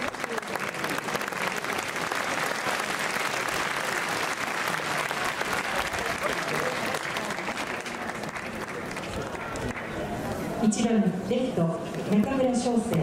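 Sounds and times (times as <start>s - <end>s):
crowd applauding: 0.0s - 10.4s.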